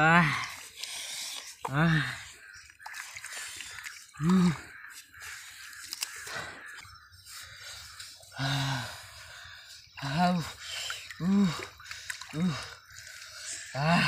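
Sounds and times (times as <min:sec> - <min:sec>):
water dripping: 0:00.0 - 0:07.1, 0:07.9 - 0:14.0
hands squelching in wet sand: 0:00.4 - 0:08.8.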